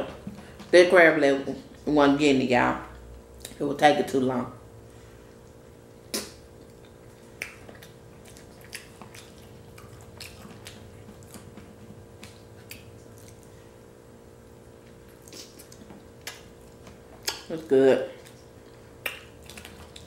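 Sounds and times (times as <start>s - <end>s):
wet mouth smacks while chewing: 5.4s - 13.5s, 14.8s - 17.5s, 18.2s - 20.0s.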